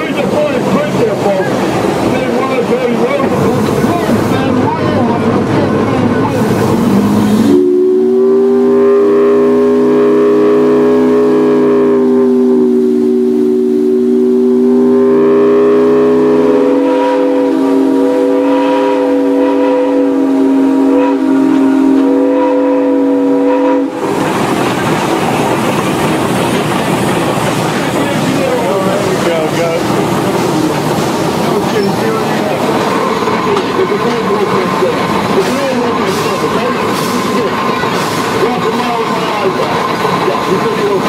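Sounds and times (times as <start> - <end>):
steam locomotive running: 0.0 - 41.0
steam whistle chord: 7.2 - 24.0.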